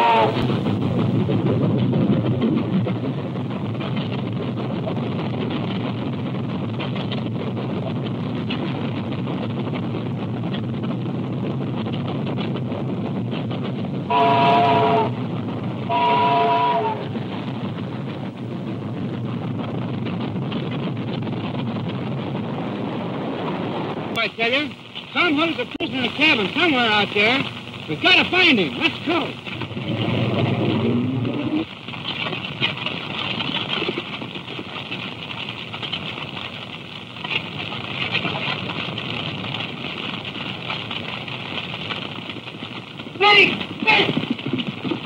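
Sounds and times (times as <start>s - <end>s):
steam locomotive whistle: 0.0s - 0.5s, 14.1s - 15.2s, 15.8s - 17.1s
steam locomotive rumbling: 0.0s - 45.0s.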